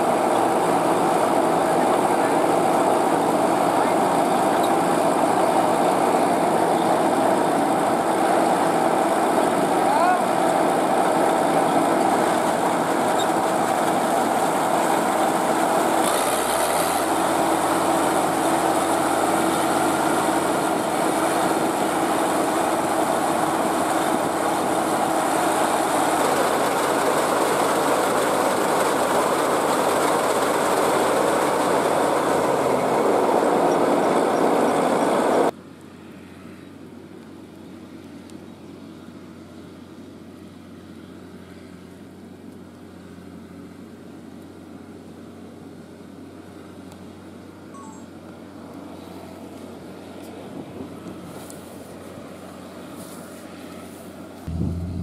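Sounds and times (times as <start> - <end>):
auger pouring grain: 0.0 - 33.6
combine harvester running: 0.0 - 55.0
faint hum: 54.4 - 55.0.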